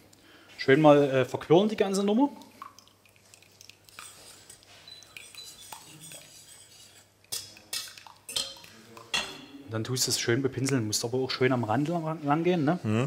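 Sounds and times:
metal whisk stirring in saucepan: 1.5 - 9.5
whisk clinking against pot: 3.3 - 9.6.

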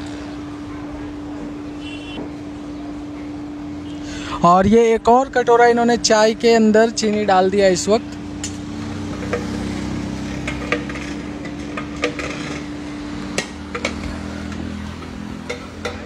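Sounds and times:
metal ladle clanking on pot: 15.4 - 16.0.

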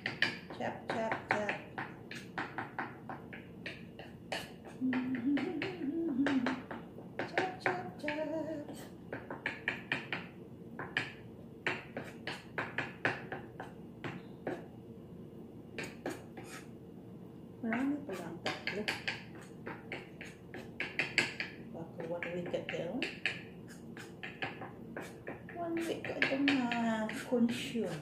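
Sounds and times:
person humming: 4.4 - 8.9
knife chopping on cutting board: 9.1 - 14.6, 15.8 - 16.7, 24.0 - 28.0.

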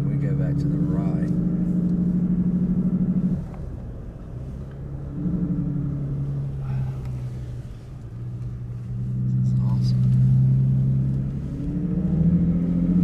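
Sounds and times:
car engine hum: 0.0 - 13.0
road rumble: 0.0 - 13.0.

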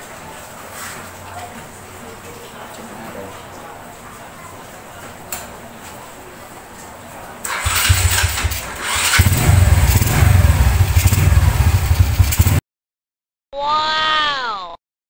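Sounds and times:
motorcycle engine running: 7.5 - 12.6.

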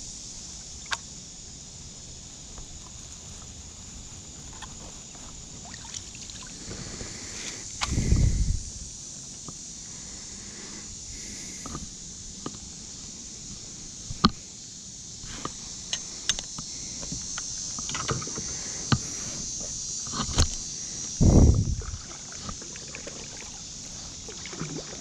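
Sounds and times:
steady high hiss: 0.0 - 25.0
low rumbling handling noise: 7.7 - 9.0, 21.2 - 22.1.

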